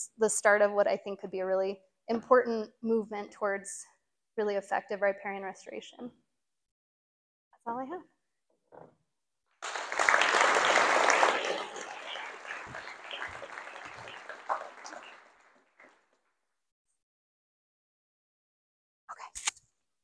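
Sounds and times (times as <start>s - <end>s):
audience applauding: 9.6s - 16.0s.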